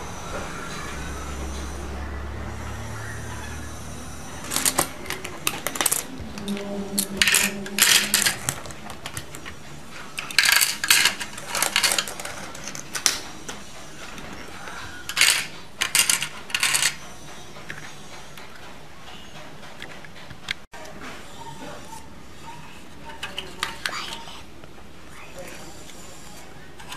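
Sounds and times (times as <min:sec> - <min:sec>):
plastic toy coins clattering: 0:04.4 - 0:09.4, 0:10.2 - 0:13.2, 0:15.0 - 0:17.0.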